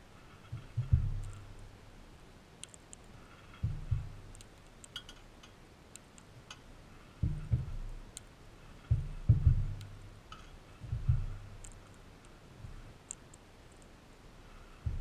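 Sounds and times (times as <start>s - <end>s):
seeds clicking and cracking: 2.6s - 3.4s, 4.2s - 6.7s.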